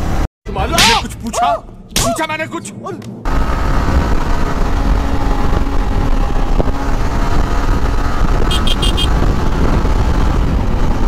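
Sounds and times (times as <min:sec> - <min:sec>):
motorcycle engine and wind rumble: 0:03.2 - 0:11.0.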